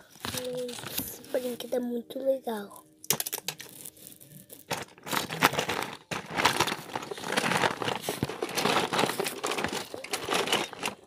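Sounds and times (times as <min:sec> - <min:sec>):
phone handling rustling: 0:00.2 - 0:01.4, 0:04.6 - 0:11.0.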